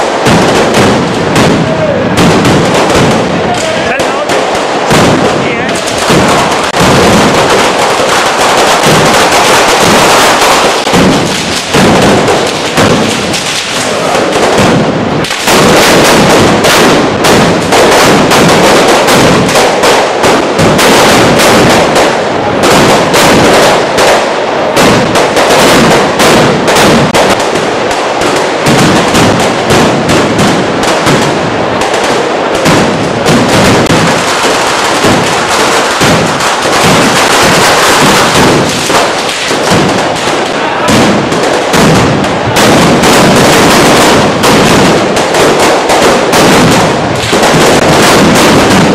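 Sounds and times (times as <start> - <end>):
firecrackers banging and crackling: 0.0 - 48.9.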